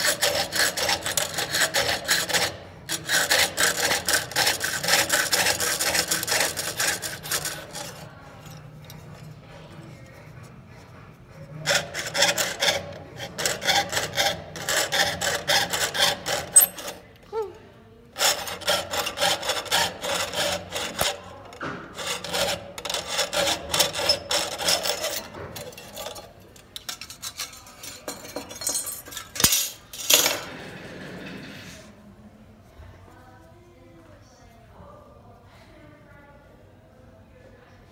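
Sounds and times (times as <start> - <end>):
saw blade rasping through metal: 0.0 - 17.1, 18.2 - 30.6.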